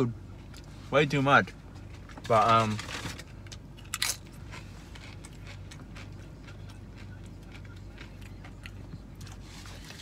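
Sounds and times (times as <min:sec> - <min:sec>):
steady low hum: 0:00.0 - 0:10.0
chewing with wet mouth clicks: 0:04.3 - 0:09.4.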